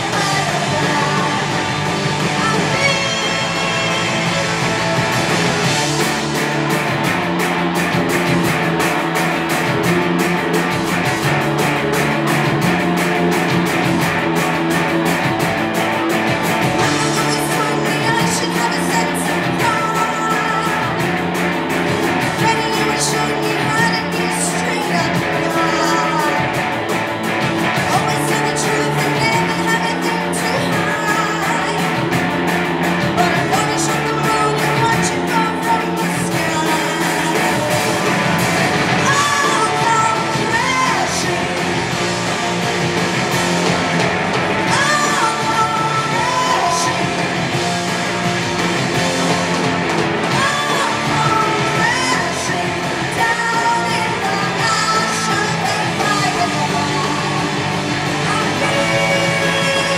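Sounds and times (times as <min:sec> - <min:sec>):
person singing: 0:00.0 - 0:05.6, 0:16.2 - 0:32.3, 0:33.0 - 0:42.2, 0:44.5 - 0:47.8, 0:50.2 - 0:59.9
drums: 0:00.0 - 0:59.9
electric guitars: 0:00.0 - 0:59.9.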